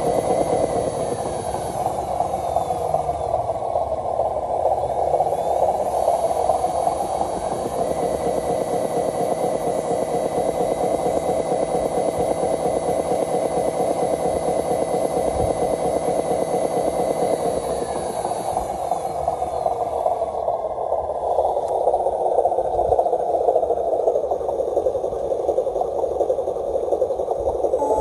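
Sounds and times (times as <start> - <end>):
motor and gears whirring: 0.0 - 21.9, 27.8 - 28.0
thin motor whine: 0.0 - 22.9, 27.7 - 28.0.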